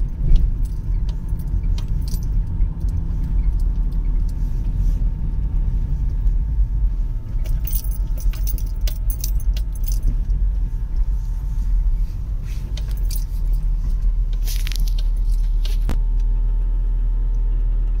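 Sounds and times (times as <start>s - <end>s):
light clicks and rattles: 0.0s - 6.4s, 7.3s - 11.1s, 12.6s - 15.9s
car engine and tyre rumble: 0.0s - 18.0s.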